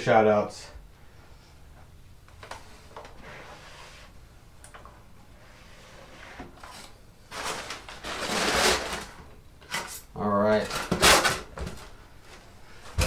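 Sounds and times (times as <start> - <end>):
plastic tub sliding and scraping: 5.5 - 9.3.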